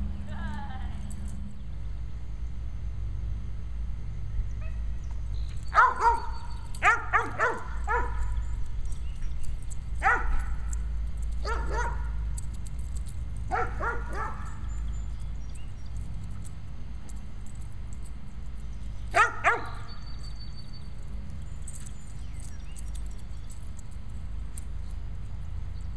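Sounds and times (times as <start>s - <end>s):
dog barking: 5.7s - 8.3s, 10.0s - 10.6s, 11.4s - 12.2s, 13.5s - 14.6s, 19.1s - 19.9s.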